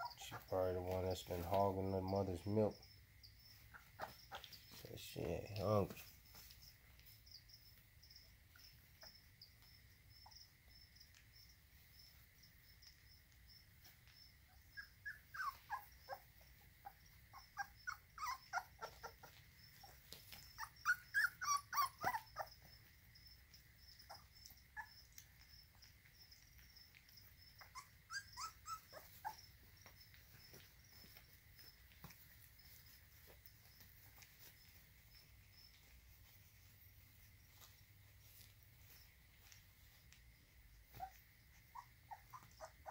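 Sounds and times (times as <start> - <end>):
puppies crying high-pitched: 0.0 - 2.8, 3.4 - 4.9, 14.4 - 25.9, 27.0 - 34.8, 40.9 - 42.9
crickets chirping: 0.0 - 42.9.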